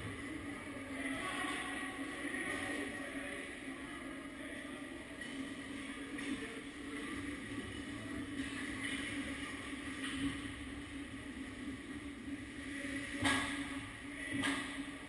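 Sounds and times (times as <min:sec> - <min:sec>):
low arena hum: 0:00.0 - 0:15.0.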